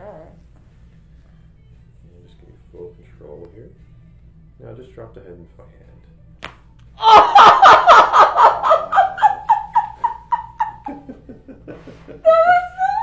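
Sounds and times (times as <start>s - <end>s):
woman laughing: 7.0s - 13.0s.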